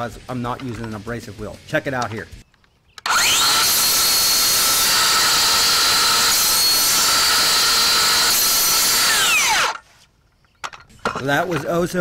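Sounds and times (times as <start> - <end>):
circular saw cutting steel tube: 3.1 - 9.8.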